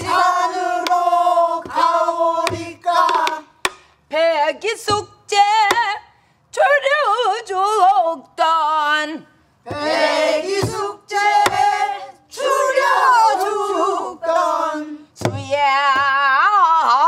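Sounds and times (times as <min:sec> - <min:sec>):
group of voices singing: 0:00.0 - 0:04.6, 0:09.7 - 0:16.1
barrel drum strokes: 0:09.7 - 0:11.8
woman singing alone: 0:15.4 - 0:17.0.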